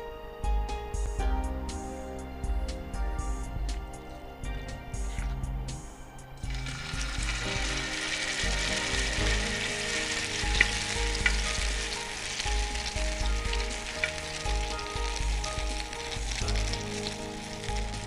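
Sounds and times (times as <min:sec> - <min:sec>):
batter sizzling in hot oil: 0:06.4 - 0:18.0.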